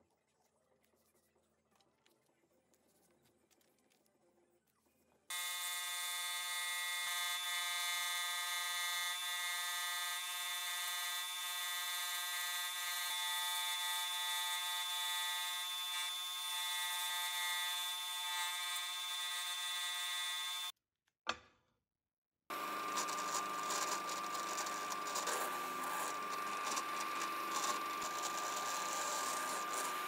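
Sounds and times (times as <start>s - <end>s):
scroll saw cutting wood: 5.3s - 20.7s, 22.5s - 30.0s.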